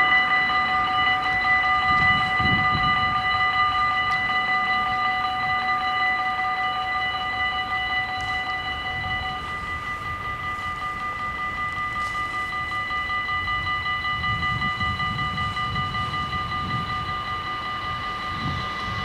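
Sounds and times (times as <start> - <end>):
level crossing warning bells: 0.0 - 19.0.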